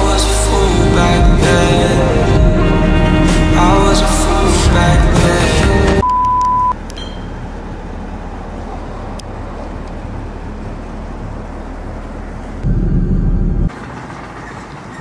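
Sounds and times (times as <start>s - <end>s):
short electronic beep: 6.0s - 7.4s
vehicle engine idling rumble: 6.7s - 15.0s.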